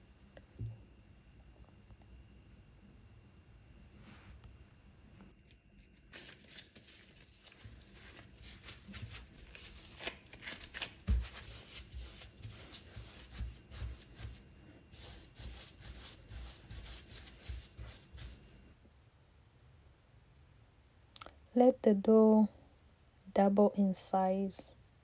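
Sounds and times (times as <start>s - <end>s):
hands rubbing dough: 6.2s - 18.6s
dough thudding on mat: 10.7s - 14.4s.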